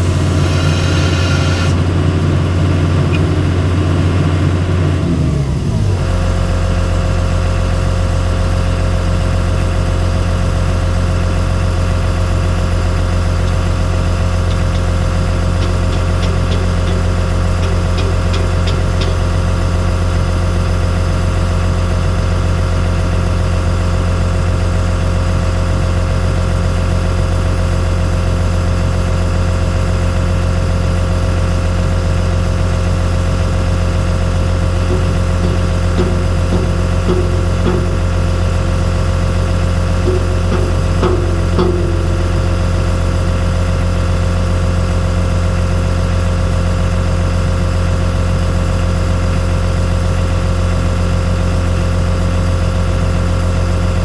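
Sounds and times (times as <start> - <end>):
diesel engine idling: 0.0 - 54.0
steady whine: 11.2 - 22.7, 32.5 - 46.2.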